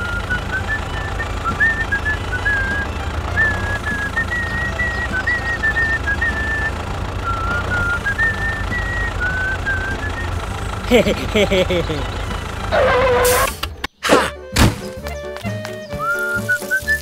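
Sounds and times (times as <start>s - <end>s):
whistled tune: 0.0s - 10.5s, 14.8s - 17.0s
tractor engine pulsing: 0.0s - 17.0s.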